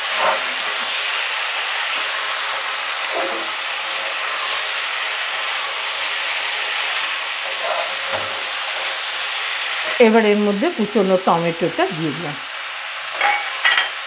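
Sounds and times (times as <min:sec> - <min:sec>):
spatula scraping a pan: 0:00.0 - 0:10.0
vegetables sizzling in oil: 0:00.0 - 0:14.0.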